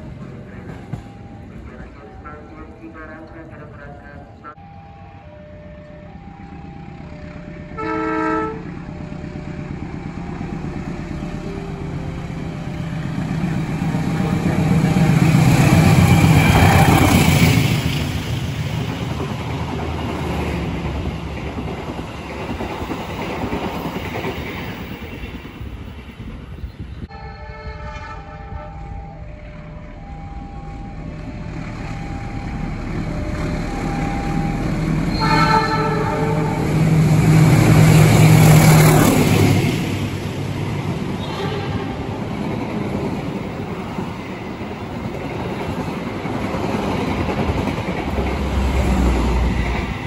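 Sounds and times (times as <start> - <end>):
train rumble and wheel clatter: 0.0 - 50.0
train horn blast: 7.7 - 8.8, 27.1 - 29.1, 35.1 - 36.9, 41.2 - 42.2.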